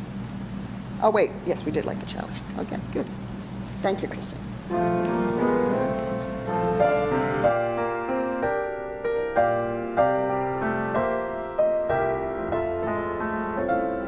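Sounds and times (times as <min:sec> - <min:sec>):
slow solo piano piece: 0:04.7 - 0:14.0.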